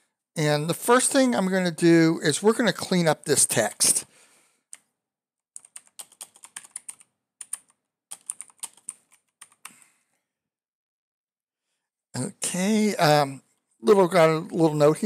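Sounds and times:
keyboard typing clicks: 5.6 - 9.8.

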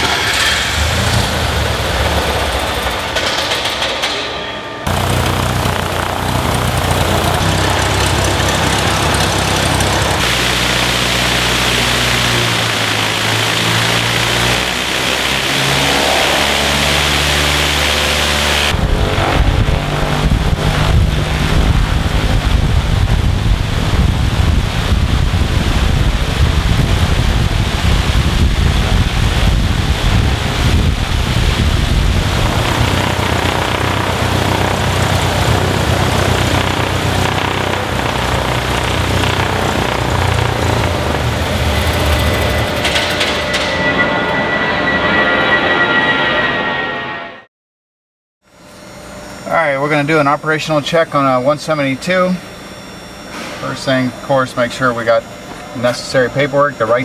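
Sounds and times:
propeller plane engine running: 0.0 - 4.0, 4.8 - 46.4.

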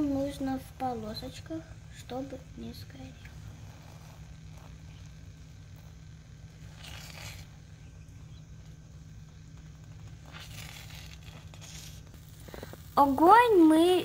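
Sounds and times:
eggs sizzling: 0.0 - 14.0
low steady hum: 0.0 - 14.0.

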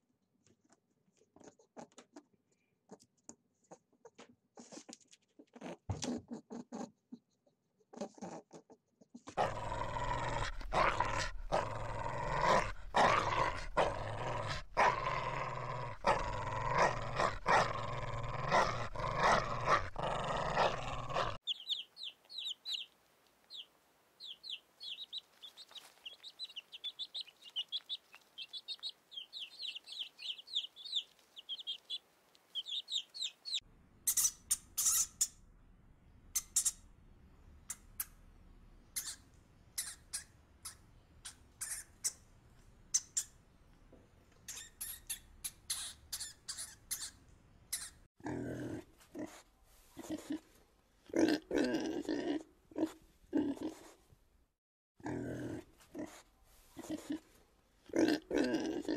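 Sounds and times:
hen: 20.7 - 35.3
chicks peeping: 21.4 - 33.6
guinea pigs squeaking: 21.4 - 35.4, 38.9 - 42.2, 42.9 - 43.4, 44.4 - 48.1.

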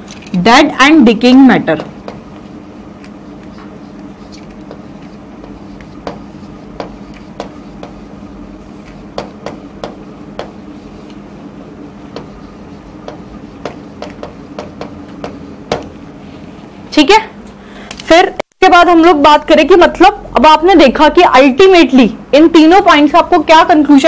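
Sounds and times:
steady hum: 0.0 - 24.0
chalk tapping on chalkboard: 1.7 - 11.2, 12.0 - 16.0.

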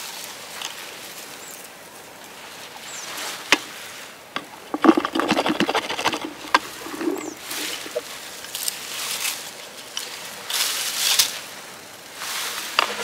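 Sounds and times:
berries rattling into plastic jug: 4.4 - 8.1.

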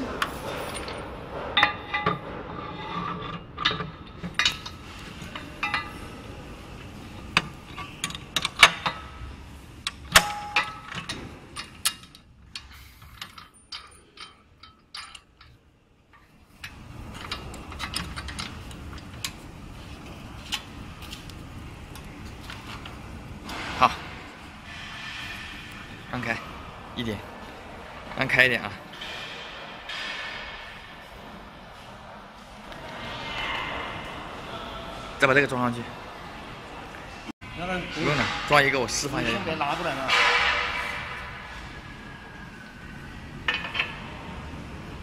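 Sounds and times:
metal hardware clicks and clanks: 0.0 - 6.2, 7.2 - 26.4, 37.9 - 41.7, 43.4 - 44.1.

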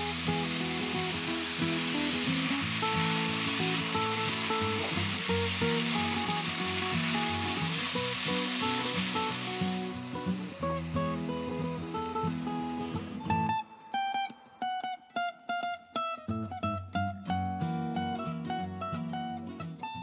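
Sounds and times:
meat sizzling in a frying pan: 0.0 - 11.6.

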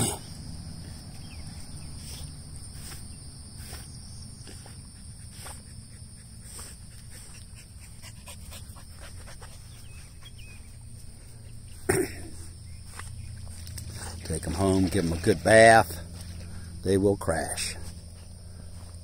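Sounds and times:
high insect drone: 0.0 - 19.0
husky panting: 4.4 - 11.8.

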